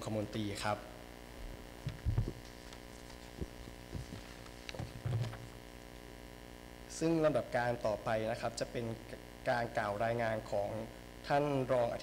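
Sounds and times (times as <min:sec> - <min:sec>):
electrical mains hum: 0:00.0 - 0:12.0
faint low thumps: 0:01.4 - 0:02.4.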